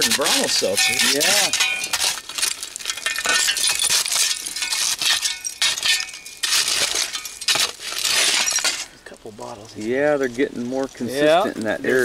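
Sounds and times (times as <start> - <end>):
spade digging dirt: 0.0 - 2.3, 3.6 - 8.9
spade clinking on glass: 0.6 - 2.2, 2.9 - 8.8.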